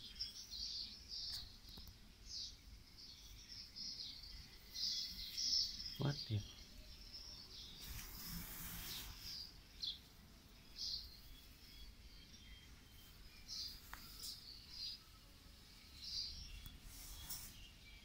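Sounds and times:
small birds chirping: 0:00.0 - 0:18.0
brief hiss: 0:07.8 - 0:09.5, 0:16.8 - 0:17.7.

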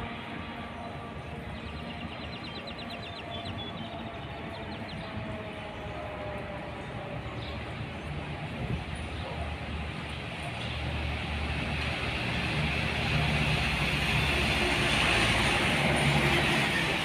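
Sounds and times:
diesel locomotive engine hum: 0:00.0 - 0:17.0
train wheel noise: 0:07.7 - 0:17.0.

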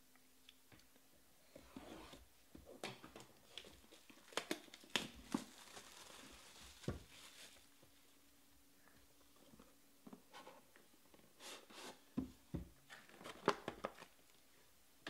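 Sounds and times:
plastic wrap crinkling and tearing: 0:03.4 - 0:07.8.

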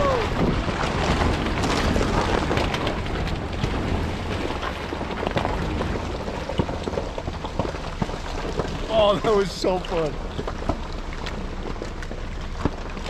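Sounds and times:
wind buffeting microphone: 0:00.0 - 0:09.2
low engine rumble: 0:00.0 - 0:13.0
tyres crunching through slush: 0:00.0 - 0:13.0.

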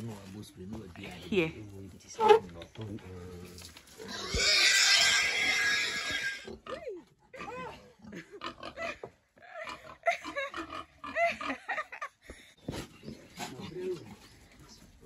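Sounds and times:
boar grunting: 0:03.1 - 0:11.6
boar squealing: 0:04.0 - 0:06.7.

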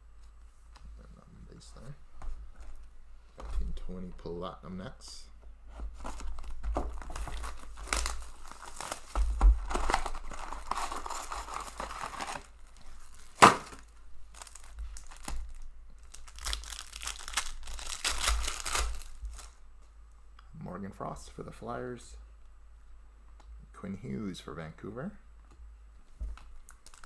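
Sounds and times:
plastic shrink wrap crinkling: 0:06.0 - 0:19.6, 0:26.4 - 0:27.0
foil pack tearing: 0:06.4 - 0:19.5, 0:26.8 - 0:27.0.

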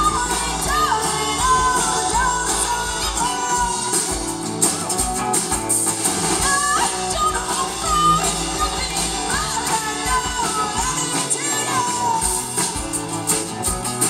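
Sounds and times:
woman singing lead: 0:00.0 - 0:04.3, 0:06.4 - 0:13.0
acoustic guitar: 0:00.0 - 0:14.0
bass guitar: 0:00.0 - 0:14.0
drums: 0:00.0 - 0:14.0
electric guitar: 0:00.0 - 0:14.0.

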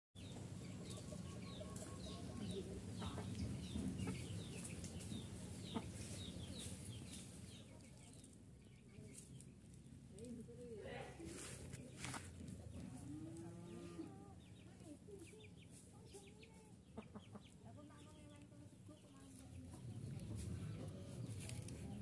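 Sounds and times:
chickens clucking: 0:00.2 - 0:10.6, 0:11.2 - 0:22.0.

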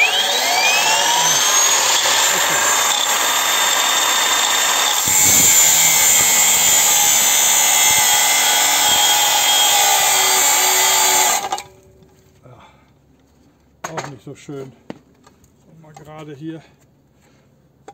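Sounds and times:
angle grinder cutting steel: 0:00.0 - 0:11.7.

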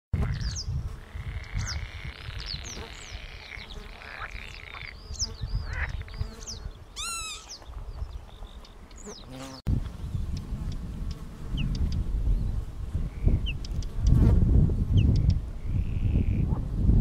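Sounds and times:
lapwings calling in flight: 0:05.6 - 0:08.7.

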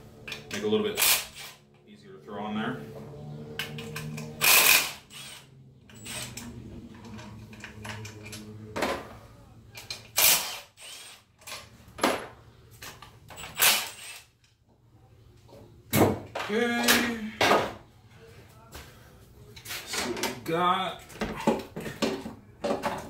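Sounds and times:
tool and bolt clatter: 0:03.6 - 0:09.1
cordless driver spinning bolts: 0:03.7 - 0:08.2.

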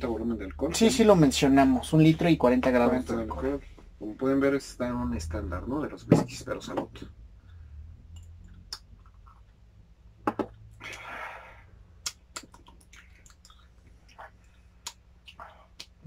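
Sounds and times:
low steady hum: 0:00.0 - 0:16.0
glasses and mouth clicks: 0:07.4 - 0:09.6, 0:12.0 - 0:16.0
breathy exhale: 0:10.8 - 0:11.8.

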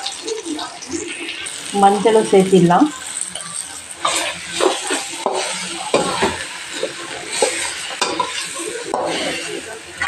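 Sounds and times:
light frying sizzle: 0:00.0 - 0:10.0
spatula scraping steel pan: 0:04.0 - 0:09.6.

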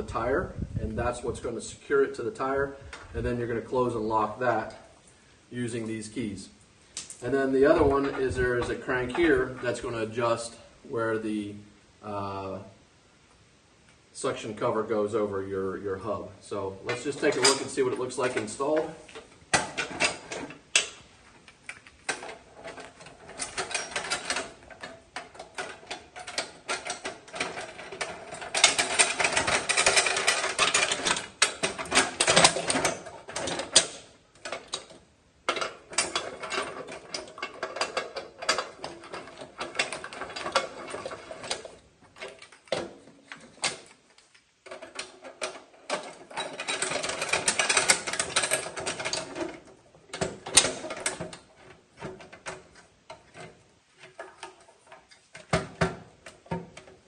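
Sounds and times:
wheel clamp metal clicking: 0:16.9 - 0:57.0.

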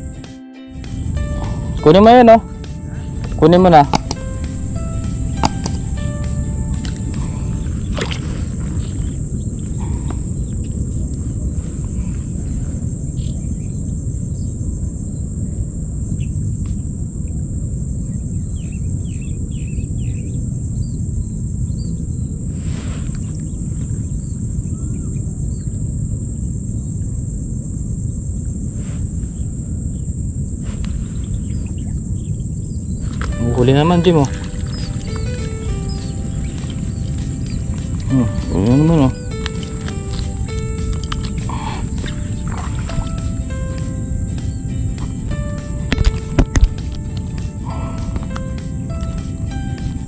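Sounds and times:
steady low rumble: 0:00.9 - 0:19.5
faint chirps: 0:29.3 - 0:50.0
high-pitched insect whine: 0:34.0 - 0:50.0.

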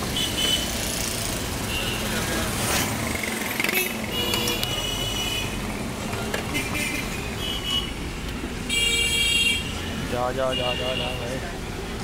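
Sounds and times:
car horns honking: 0:00.0 - 0:00.7, 0:03.6 - 0:05.6, 0:06.4 - 0:08.0, 0:08.7 - 0:11.3
street traffic: 0:00.0 - 0:12.0.

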